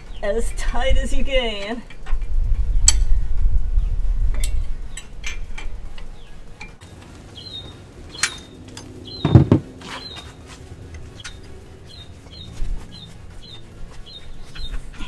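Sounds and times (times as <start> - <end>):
bird chirps: 7.3 - 10.4, 11.0 - 15.0
dull thump: 9.2 - 9.8.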